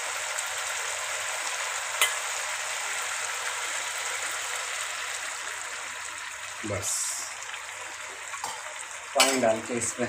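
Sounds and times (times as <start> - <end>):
gravy sizzling in a pan: 0.0 - 10.0.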